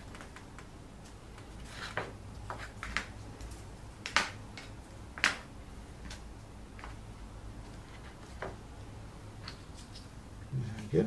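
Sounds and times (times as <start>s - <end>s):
cardboard pieces tapping: 4.0s - 6.2s.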